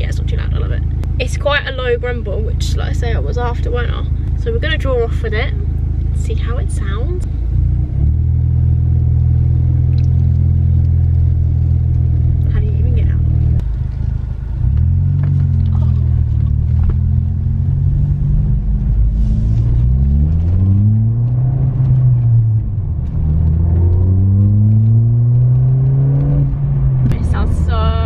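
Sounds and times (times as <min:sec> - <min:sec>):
car engine accelerating: 0:00.0 - 0:28.0.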